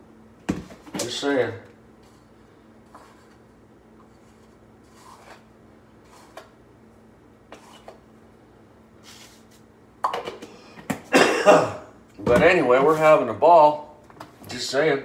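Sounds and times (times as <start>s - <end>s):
low steady hum: 0.0s - 15.0s
coffee scooping scrapes and clicks: 4.0s - 6.5s.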